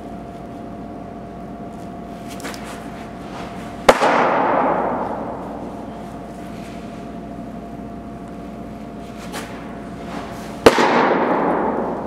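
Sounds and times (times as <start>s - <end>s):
faint steady hum: 0.0s - 12.0s
baseball smacking into mitt: 3.8s - 5.4s.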